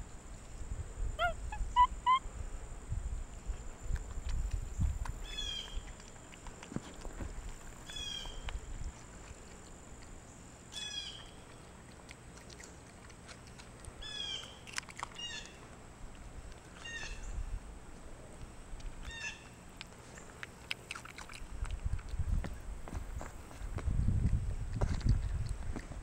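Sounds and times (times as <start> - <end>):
birds calling harshly: 7.9 - 8.4, 14.0 - 14.6, 16.8 - 17.4, 19.0 - 19.6.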